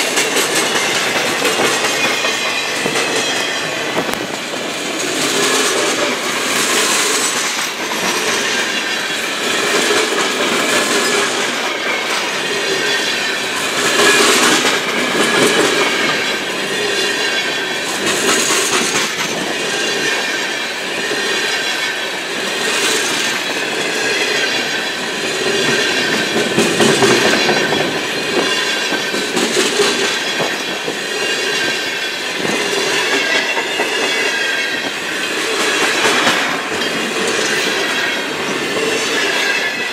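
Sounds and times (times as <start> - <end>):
wheels clacking over rail joints: 0.0 - 39.9
high wheel squeal: 0.4 - 4.0, 10.7 - 18.7.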